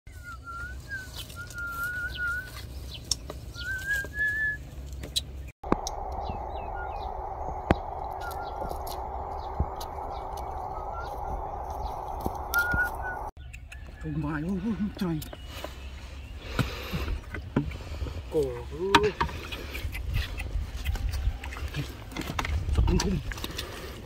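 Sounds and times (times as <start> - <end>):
birds whistling: 0.1 - 14.0.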